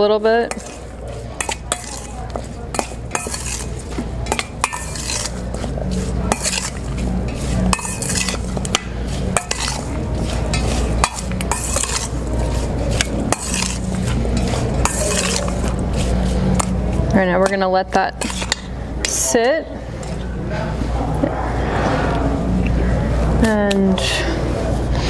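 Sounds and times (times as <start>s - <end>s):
steady low hum: 0.0s - 25.0s
spoon clinking and scraping bowl: 0.4s - 20.2s.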